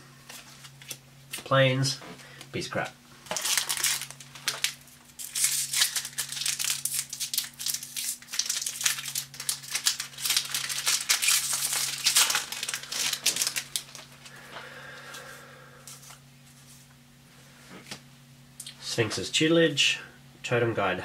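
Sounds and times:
foil wrapper crinkling: 0:03.2 - 0:14.4.

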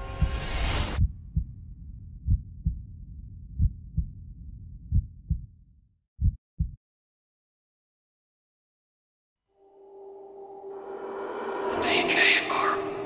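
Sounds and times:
heartbeat thumps: 0:00.0 - 0:05.6, 0:06.2 - 0:06.8
low rumble: 0:00.0 - 0:06.7
choral music chord: 0:09.6 - 0:13.0.

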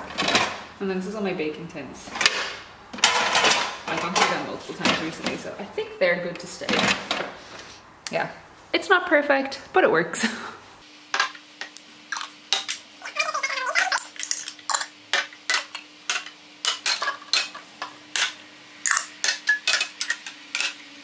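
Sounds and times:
glass jars clinking: 0:11.6 - 0:12.8, 0:13.8 - 0:20.8.

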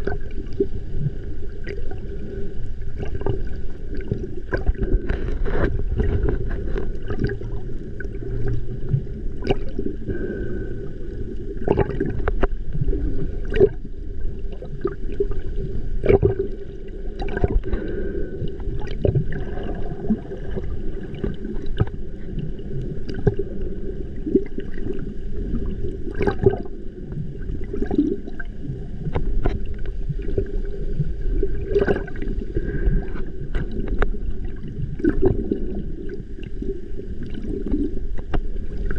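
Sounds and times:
steady low hum: 0:00.0 - 0:38.9
underwater gurgling and sloshing: 0:00.0 - 0:38.9
sharp clicks underwater: 0:03.0 - 0:08.6, 0:09.4 - 0:10.2, 0:11.6 - 0:12.6, 0:13.4 - 0:13.8, 0:16.0 - 0:16.6, 0:20.5 - 0:22.0, 0:23.0 - 0:23.4, 0:26.1 - 0:26.7, 0:29.1 - 0:30.5, 0:31.6 - 0:35.6, 0:37.2 - 0:38.9.

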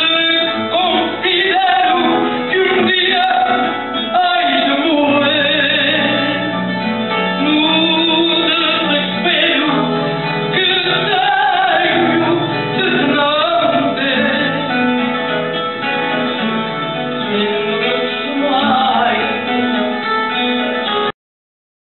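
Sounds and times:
woman singing: 0:00.0 - 0:06.6, 0:07.4 - 0:14.7, 0:17.7 - 0:19.8
plucked guitars: 0:00.0 - 0:21.1.

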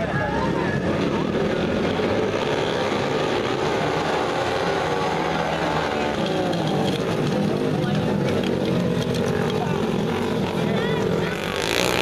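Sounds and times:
racing motorcycle engines droning: 0:00.0 - 0:12.0.

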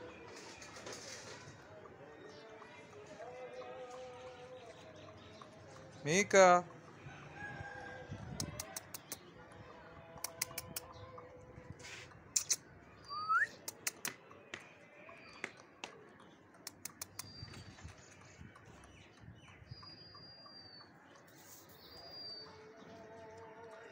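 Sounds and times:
high bird chirps: 0:11.8 - 0:14.4, 0:15.0 - 0:22.8.

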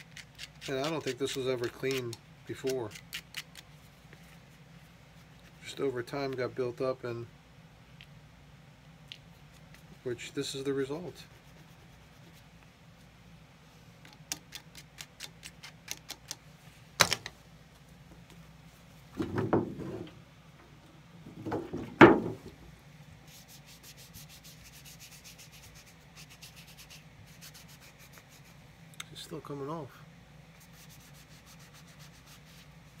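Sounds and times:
cloth rag scrubbing leather shoe: 0:30.6 - 0:33.0.

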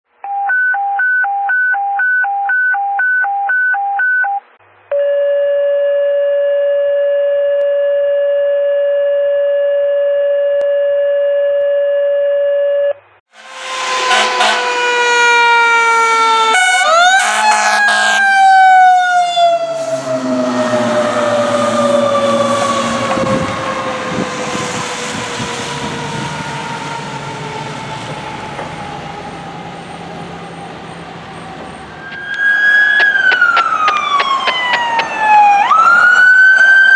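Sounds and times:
fire engine mechanical siren: 0:13.3 - 0:36.9.

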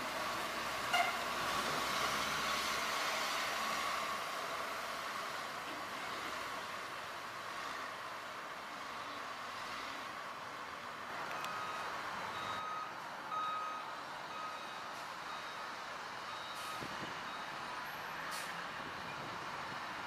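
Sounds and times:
truck reverse alarm beeping: 0:11.3 - 0:17.7.

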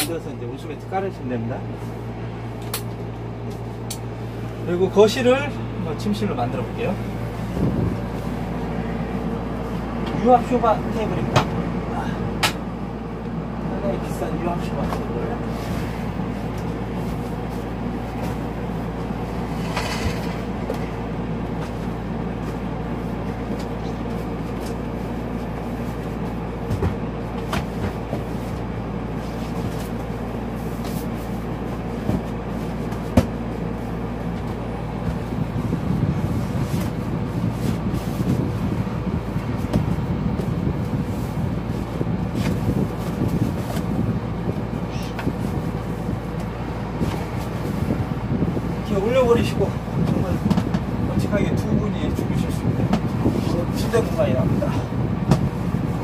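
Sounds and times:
air conditioner humming: 0:00.0 - 0:56.0
rustling and bumping: 0:25.4 - 0:41.2, 0:55.2 - 0:55.8.

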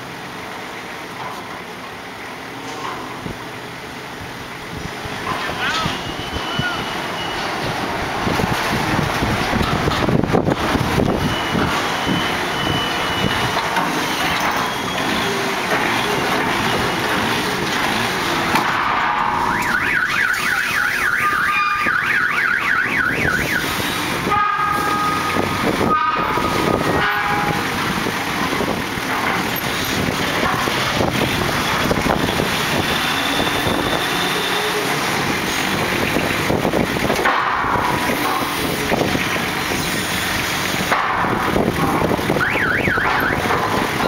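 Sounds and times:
forklift engine running: 0:00.0 - 0:44.0
wind buffeting microphone: 0:06.3 - 0:13.6, 0:23.1 - 0:34.2, 0:35.1 - 0:39.4, 0:41.2 - 0:44.0
warbling electronic alarm: 0:19.2 - 0:23.7, 0:42.4 - 0:43.4.

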